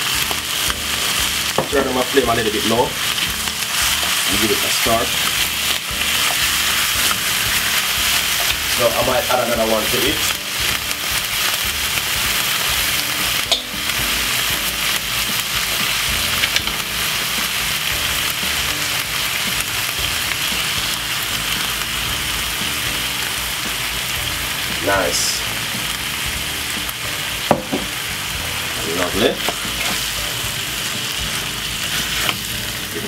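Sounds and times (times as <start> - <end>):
meat sizzling in a frying pan: 0.0 - 33.0
sharp knocks: 27.5 - 27.9.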